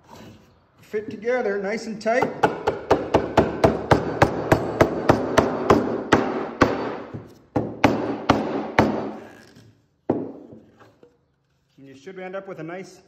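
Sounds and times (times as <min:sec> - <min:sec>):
rubber mallet striking wood: 0:02.2 - 0:09.2, 0:10.1 - 0:10.7.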